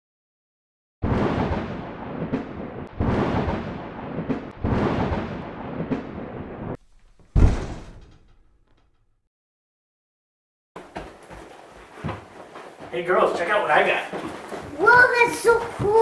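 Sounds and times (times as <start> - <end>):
deep loud thunder boom: 1.0 - 8.5
sharp thunder cracks: 1.0 - 8.5
rumbling thunderclaps: 1.0 - 8.6.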